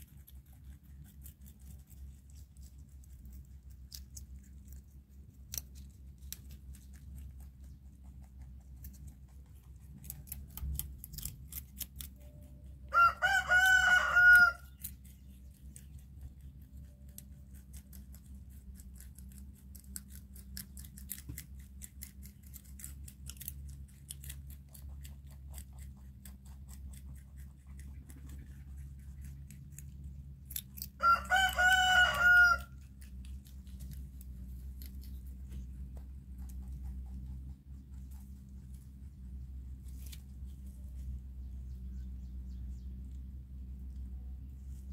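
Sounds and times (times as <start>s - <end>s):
low steady hum: 0.0s - 44.9s
rooster crowing: 12.8s - 14.9s, 31.0s - 32.9s.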